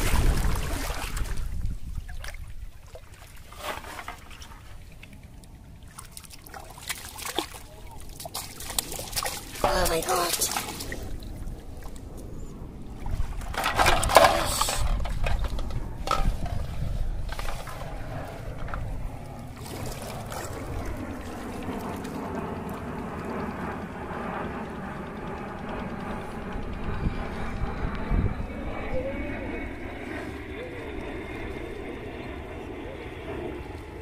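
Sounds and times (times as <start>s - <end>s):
splashing in shallow water: 0.0s - 15.6s, 16.2s - 23.2s
aircraft engines droning: 0.0s - 34.0s.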